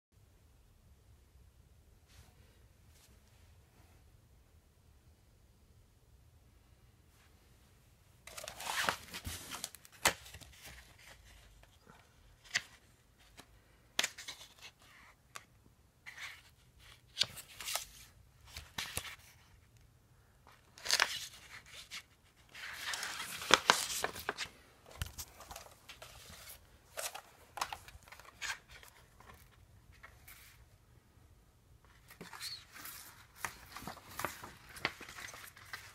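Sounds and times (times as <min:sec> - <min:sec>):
plastic sheets crinkling: 0:08.3 - 0:13.4, 0:20.5 - 0:30.6, 0:31.9 - 0:35.9.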